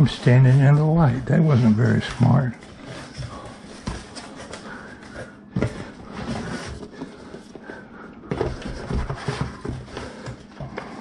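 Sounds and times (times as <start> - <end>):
cardboard scraping and rustling: 5.6 - 7.5, 8.3 - 10.3.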